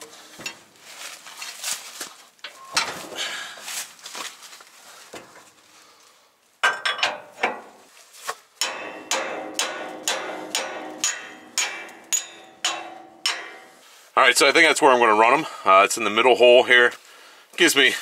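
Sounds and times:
hammer striking steel pin: 0:08.6 - 0:13.9.

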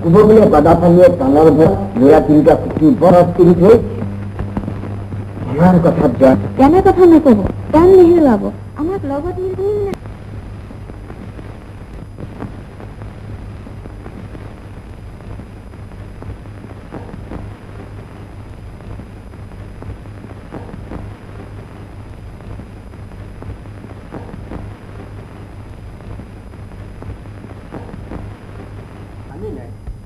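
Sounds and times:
film crackles and pops: 0:00.0 - 0:30.0
low hum and hiss: 0:00.0 - 0:30.0.

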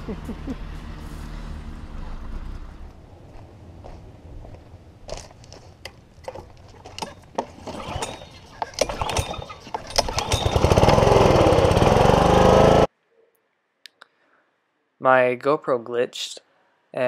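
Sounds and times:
handling knocks and clicks: 0:05.8 - 0:10.9
pull cord being pulled: 0:06.9 - 0:11.5
pressure washer engine running: 0:10.1 - 0:12.9.

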